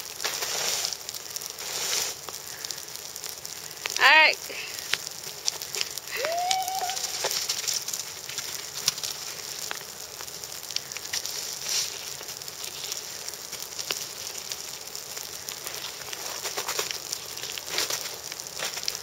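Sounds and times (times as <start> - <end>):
footsteps crunching in wet snow: 0.0 - 2.4, 5.3 - 9.8.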